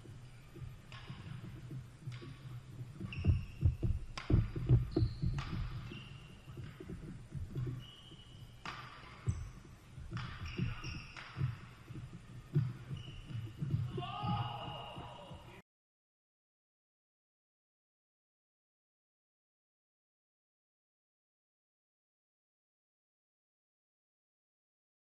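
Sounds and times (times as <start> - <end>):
shoe squeaks on court floor: 2.2 - 14.0
racket striking shuttlecock: 4.2 - 7.8, 8.6 - 13.9.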